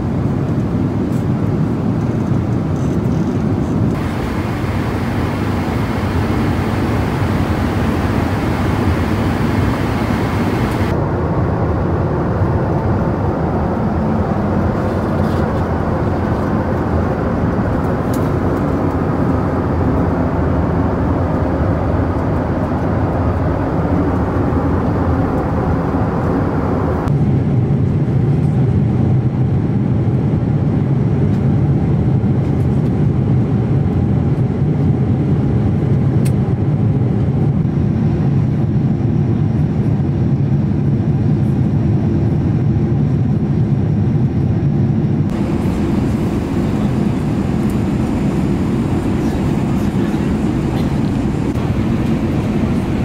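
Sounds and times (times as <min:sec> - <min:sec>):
airplane cabin noise: 0:00.0 - 0:53.0
engine drone: 0:03.7 - 0:12.0, 0:45.0 - 0:53.0.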